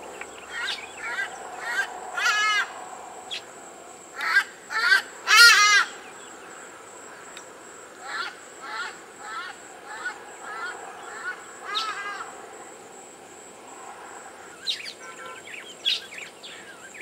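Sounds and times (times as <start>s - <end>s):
hornbills calling: 0.0s - 3.5s.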